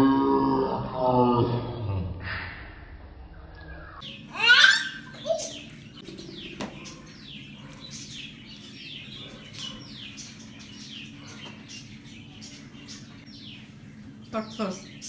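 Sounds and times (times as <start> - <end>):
bird chirping: 3.5 - 15.0.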